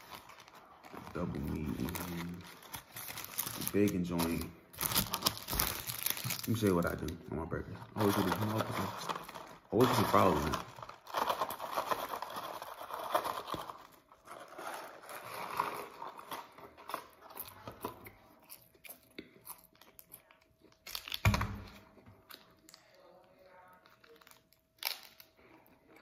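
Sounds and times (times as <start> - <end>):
paper carton crinkling: 0.0 - 7.1, 7.9 - 17.7
close-up chewing: 15.6 - 21.2.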